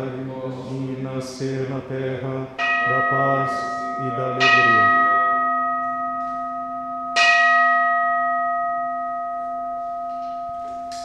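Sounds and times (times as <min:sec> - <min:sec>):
bowl bell ringing: 0:02.6 - 0:11.0.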